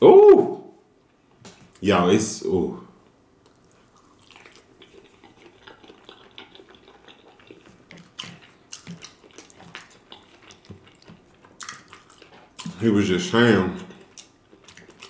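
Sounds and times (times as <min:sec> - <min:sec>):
chewing food: 0:03.4 - 0:15.0.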